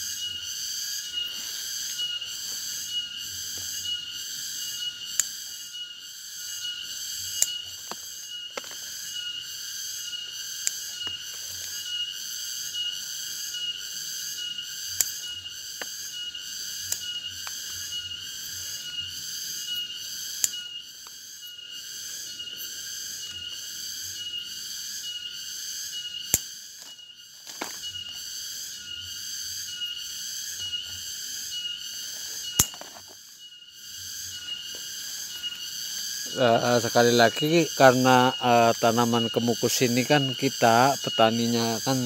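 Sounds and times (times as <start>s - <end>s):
high-pitched insect chorus: 0.0s - 42.0s.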